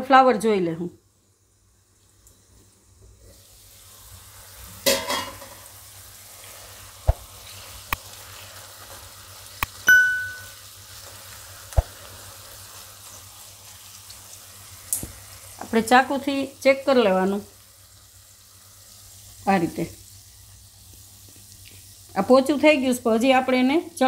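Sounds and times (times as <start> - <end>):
vegetables sizzling in oil: 0.6 - 24.0
metal lid clatter: 4.8 - 5.5
ringing clink: 9.9 - 10.6.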